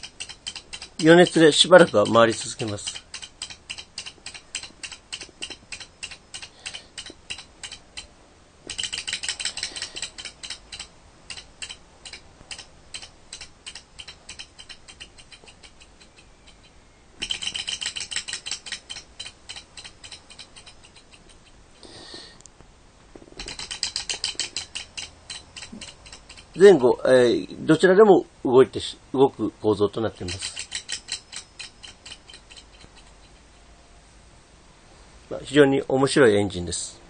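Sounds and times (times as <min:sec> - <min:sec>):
small engine model clicking: 0:00.0 - 0:08.1, 0:08.7 - 0:21.6, 0:23.4 - 0:26.8, 0:30.2 - 0:33.5.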